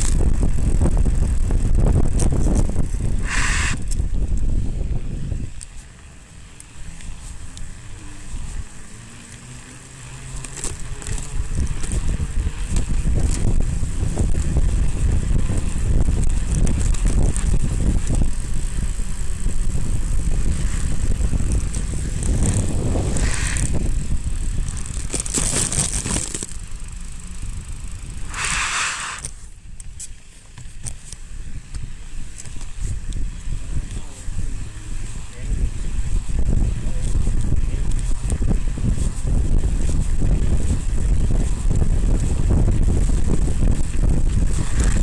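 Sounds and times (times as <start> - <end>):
bike clicks and rattles: 0.0 - 45.0
bike riding rumble: 0.0 - 45.0
short hissing bursts: 3.2 - 3.9, 23.2 - 23.6, 28.2 - 29.4.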